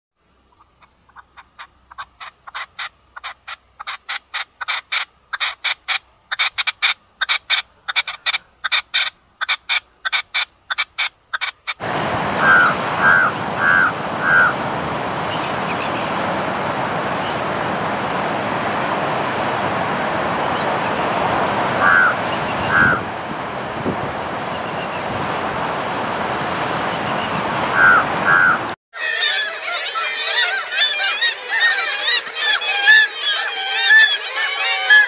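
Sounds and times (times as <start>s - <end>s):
partridge harsh chuck calls: 0.5s - 11.8s
steady rushing noise: 11.2s - 28.8s
crow cawing: 12.4s - 14.6s, 21.8s - 23.0s, 27.7s - 35.0s.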